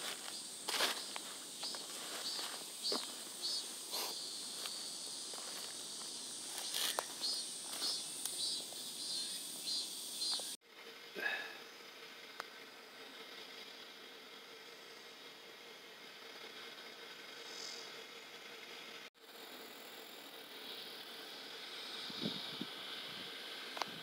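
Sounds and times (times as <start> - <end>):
footsteps through grass: 0.0 - 8.5
insect chirping drone: 0.0 - 24.0.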